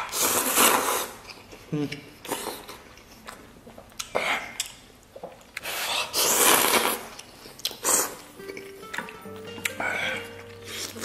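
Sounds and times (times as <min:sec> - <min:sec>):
slurping noodles: 0:00.0 - 0:01.3, 0:05.6 - 0:08.2
person chewing: 0:00.0 - 0:11.0.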